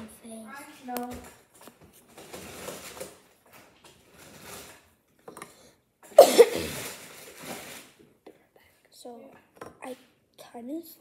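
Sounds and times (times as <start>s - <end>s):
rustling: 1.6s - 5.0s, 6.6s - 8.0s
child coughing: 6.1s - 6.9s.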